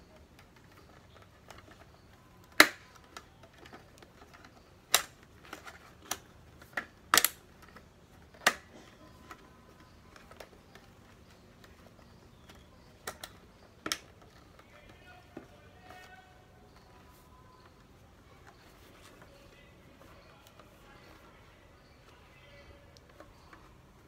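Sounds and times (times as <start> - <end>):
plastic visor clicking onto helmet: 1.4 - 17.0.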